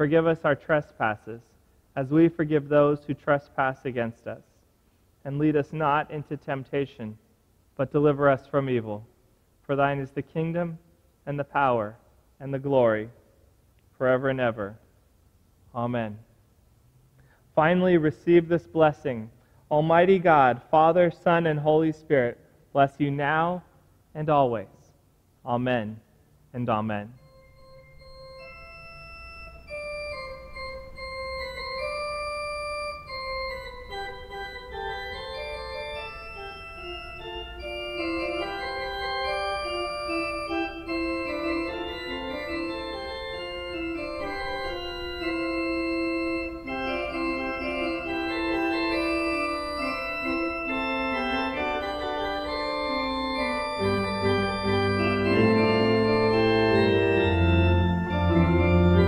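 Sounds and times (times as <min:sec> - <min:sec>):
pipe organ chords: 0:26.8 - 0:59.0.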